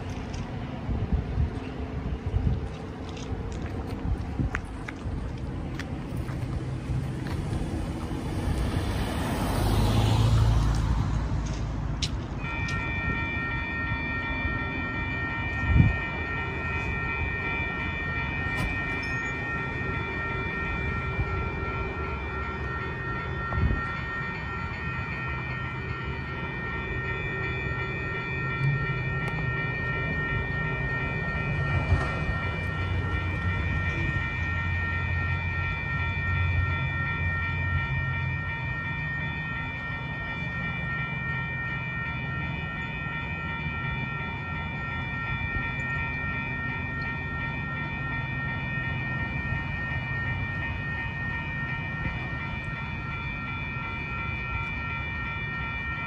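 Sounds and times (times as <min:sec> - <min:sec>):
crossing warning bell ringing: 0:00.0 - 0:56.0
car driving past: 0:07.8 - 0:12.0.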